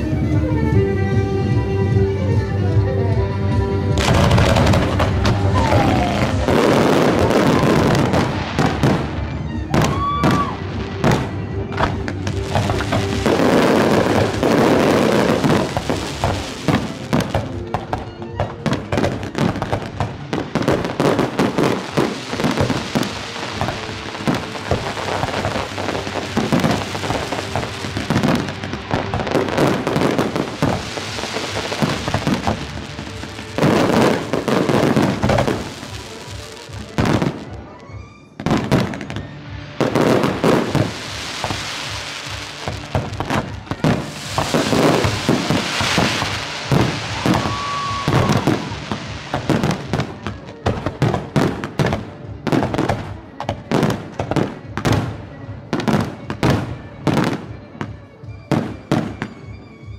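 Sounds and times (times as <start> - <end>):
music playing: 0.0 - 59.9
fireworks crackling: 3.9 - 37.7, 38.4 - 57.4
firework shells bursting: 39.9 - 50.0.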